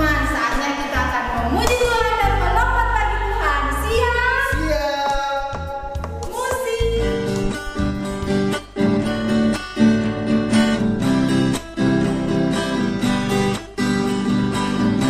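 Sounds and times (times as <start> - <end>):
acoustic guitar strumming: 5.1 - 15.0.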